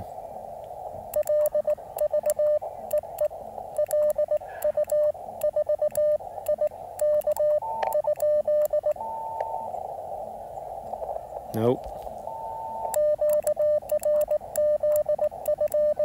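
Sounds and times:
radio band hiss: 0.0 - 16.0
morse code tone: 1.1 - 9.7, 12.2 - 16.0.

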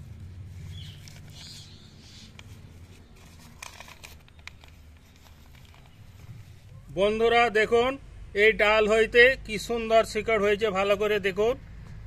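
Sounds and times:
plastic bag crinkling: 3.1 - 6.4.

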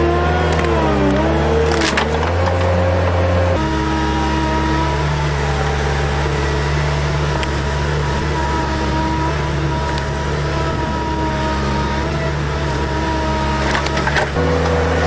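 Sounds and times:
ripper tearing out tree stump: 0.0 - 3.2, 13.4 - 14.8
loader engine running under load: 0.0 - 15.0.

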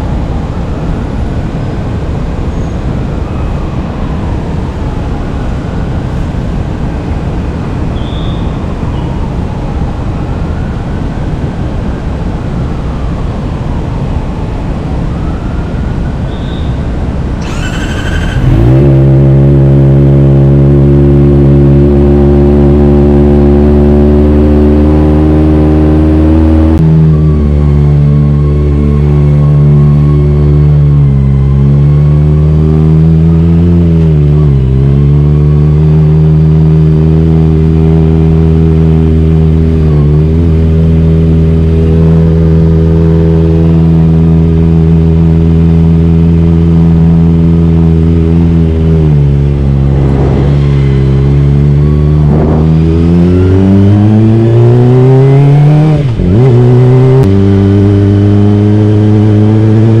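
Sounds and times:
motorcycle engine revving: 17.4 - 60.0.

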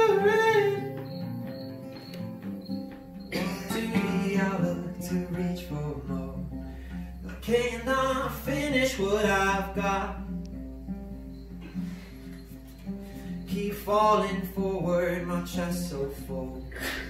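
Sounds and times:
person singing: 0.0 - 1.3, 3.4 - 6.6, 7.3 - 10.3, 13.5 - 17.0
acoustic guitar: 0.0 - 17.0.

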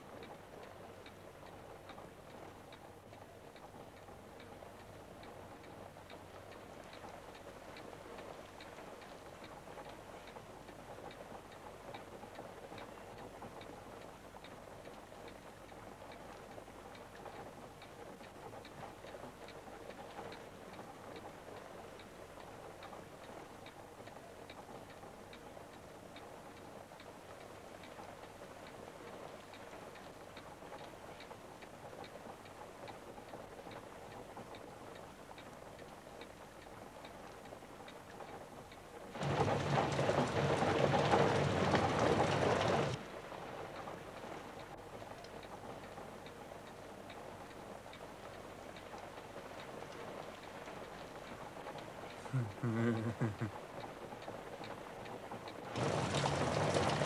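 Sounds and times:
faint hiss: 0.0 - 57.0
clock ticking: 0.1 - 40.6, 43.7 - 55.8
heavy rain: 38.9 - 57.0.

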